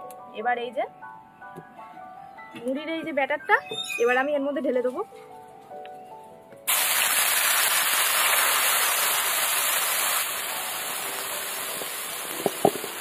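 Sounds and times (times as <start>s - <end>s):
batter sizzling in hot oil: 6.7s - 13.0s.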